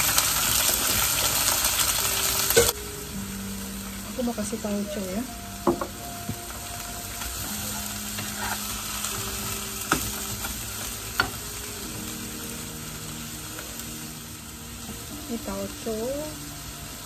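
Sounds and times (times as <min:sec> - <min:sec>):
bean sprouts sizzling in a wok: 0:00.0 - 0:17.0
wooden spatula stirring: 0:07.2 - 0:09.0.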